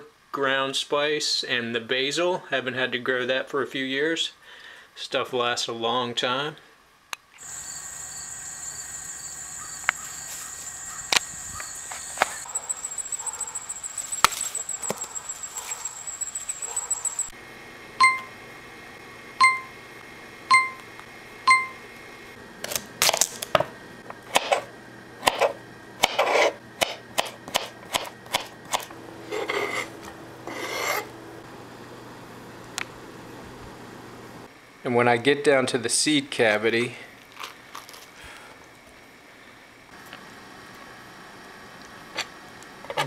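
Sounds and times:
insects trilling: 0:07.4 - 0:17.4
short electronic beeps: 0:18.0 - 0:18.3, 0:19.4 - 0:19.7, 0:20.5 - 0:20.8, 0:21.5 - 0:21.8
knife cutting on cutting board: 0:27.2 - 0:31.1.

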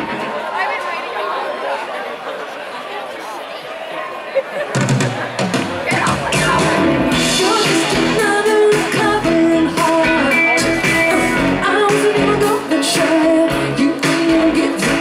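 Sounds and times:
keyboard: 0:04.7 - 0:15.0
bass guitar: 0:05.6 - 0:15.0
electric guitar: 0:06.0 - 0:15.0
woman singing: 0:06.3 - 0:15.0.

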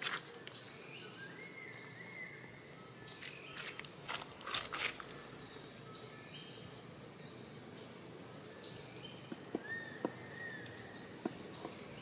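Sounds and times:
crackles and scuffs: 0:00.0 - 0:00.6, 0:03.2 - 0:05.2
birds chirping: 0:00.0 - 0:12.0.

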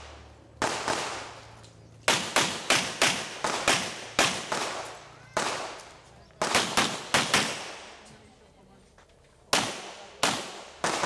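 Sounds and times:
handgun shots echoing: 0:00.6 - 0:01.4, 0:02.1 - 0:07.9.

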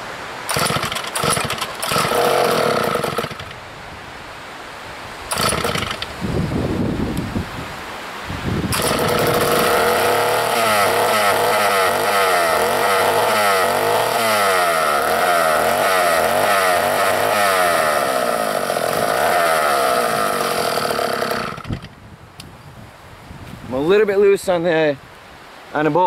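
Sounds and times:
chainsaw engine running: 0:00.5 - 0:03.6, 0:05.3 - 0:06.2, 0:08.7 - 0:22.0.

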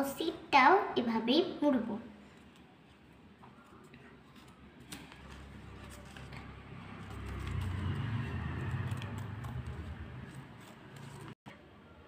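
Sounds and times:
paper rustling and crinkling: 0:02.3 - 0:11.4.

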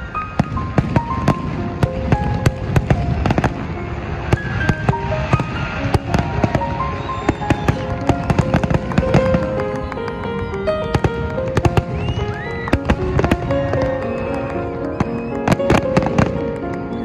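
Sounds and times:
fireworks bangs and crackles: 0:00.0 - 0:17.0
music playing a melody: 0:00.0 - 0:17.0.

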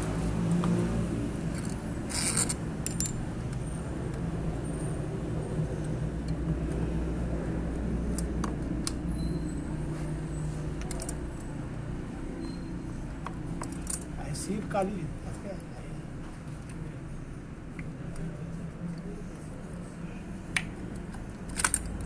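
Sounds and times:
metal and plastic parts clicking: 0:20.9 - 0:22.0.

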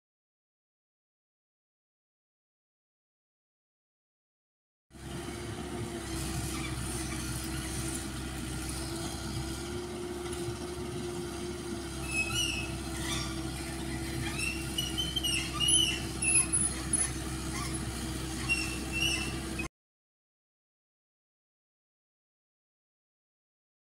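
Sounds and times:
excavator diesel engine running: 0:04.9 - 0:19.7
short high squeaks: 0:11.9 - 0:19.7.

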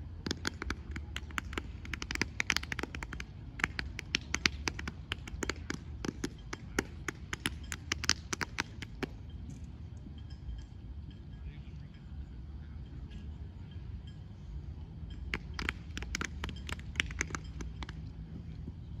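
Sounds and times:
hand slaps: 0:00.2 - 0:09.2, 0:15.3 - 0:18.0.

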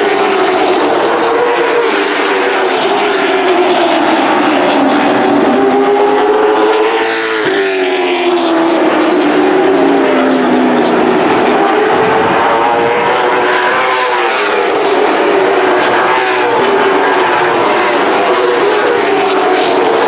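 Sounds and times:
race car engines: 0:00.0 - 0:20.0.

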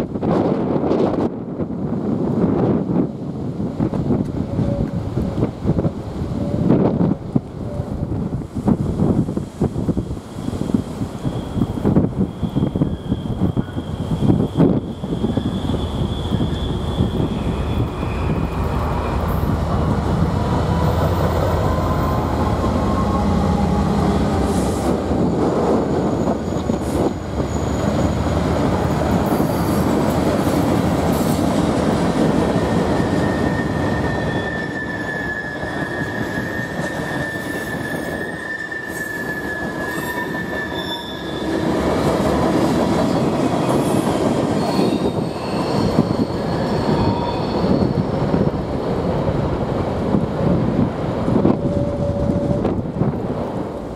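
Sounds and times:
wheel flanges squealing: 0:10.4 - 0:19.5, 0:25.5 - 0:28.6, 0:32.0 - 0:41.8, 0:43.0 - 0:49.0.

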